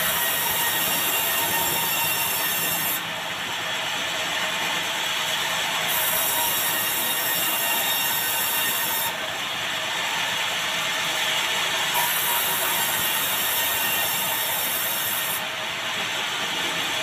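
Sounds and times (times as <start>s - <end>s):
band saw sawing boards: 0.0s - 3.0s, 5.9s - 9.2s, 11.9s - 15.5s.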